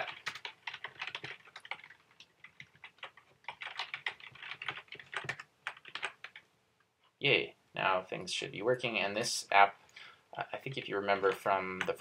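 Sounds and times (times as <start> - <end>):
typing on computer keyboard: 0.0 - 6.4.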